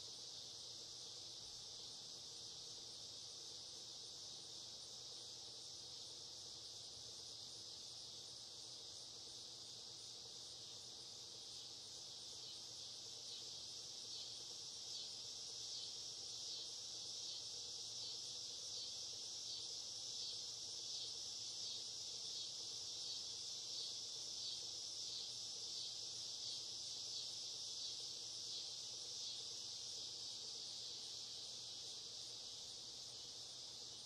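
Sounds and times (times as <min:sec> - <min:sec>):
insects trilling: 0:00.0 - 0:34.0.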